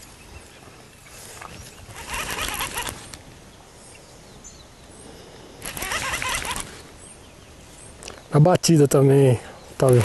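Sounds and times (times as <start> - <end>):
fishing reel whirring: 1.9 - 3.1, 5.6 - 6.8.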